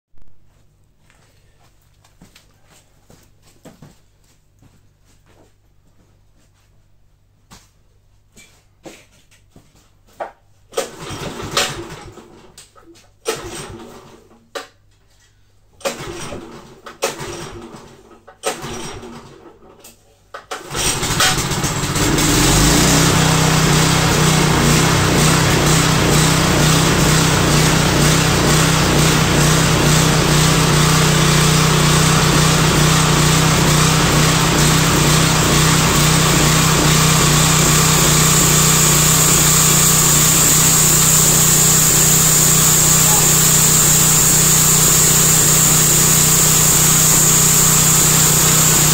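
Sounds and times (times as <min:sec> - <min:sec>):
small engine cranking and running: 0:20.5 - 0:48.9
high whine: 0:32.1 - 0:48.9.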